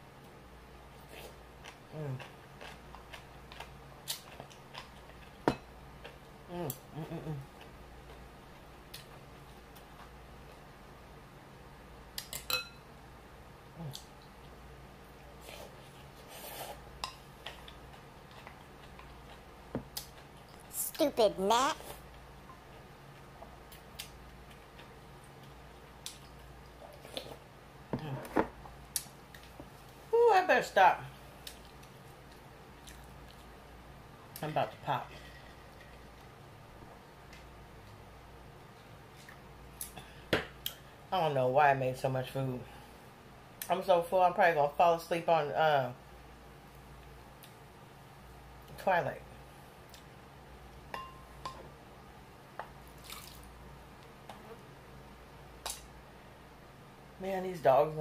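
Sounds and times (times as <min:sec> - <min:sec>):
quiet chewing: 0:01.0 - 0:05.4, 0:15.3 - 0:20.7, 0:31.4 - 0:33.6
person humming mm: 0:01.9 - 0:02.2, 0:06.5 - 0:07.5, 0:13.8 - 0:14.1.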